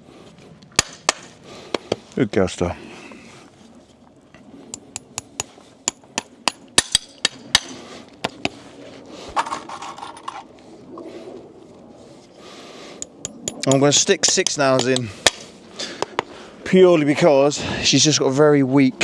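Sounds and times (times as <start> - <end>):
hammer tapping horseshoe nails: 13.0 - 15.4.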